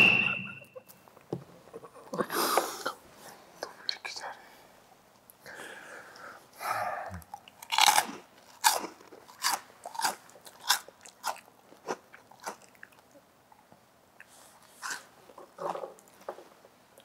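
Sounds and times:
crisp snack crunching: 7.5 - 13.0.

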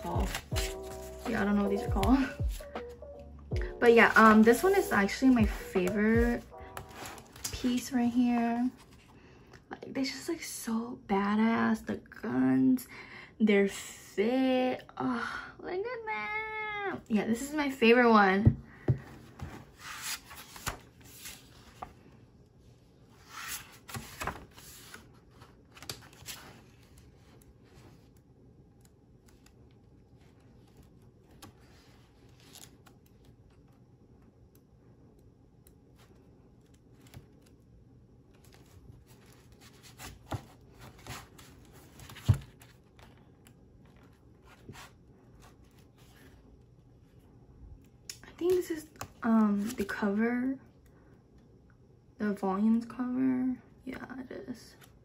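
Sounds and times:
book pages rustling: 0.0 - 2.9, 3.8 - 9.2, 19.0 - 22.2, 23.1 - 28.2, 29.2 - 33.8, 35.9 - 37.6, 38.3 - 46.6.

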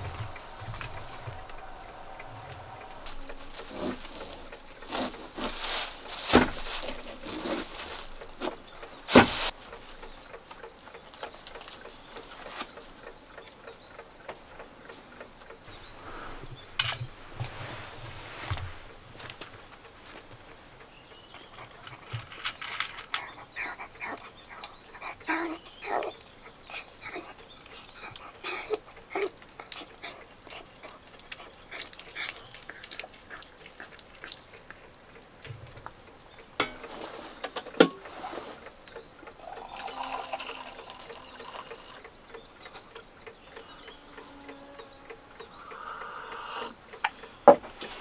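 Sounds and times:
dog crunching dry kibble: 0.1 - 10.1, 21.6 - 35.2
food clinking on metal bowl: 36.6 - 37.2.

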